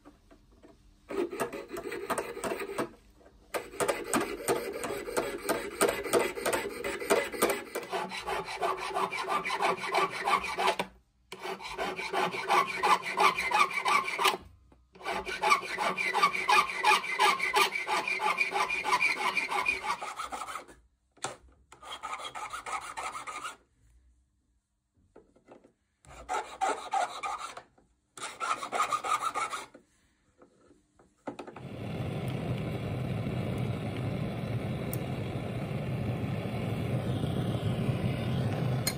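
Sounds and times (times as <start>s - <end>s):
saw and file rasping on metal: 1.1s - 2.8s, 3.7s - 14.4s, 15.0s - 20.8s, 21.8s - 23.6s, 26.0s - 27.6s, 28.2s - 29.8s
gas torch flame roaring: 31.6s - 38.9s.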